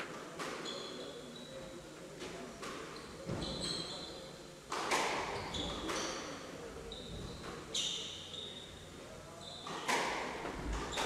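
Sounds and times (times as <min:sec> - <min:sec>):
shoes squeaking on wooden floor: 0:02.9 - 0:04.1.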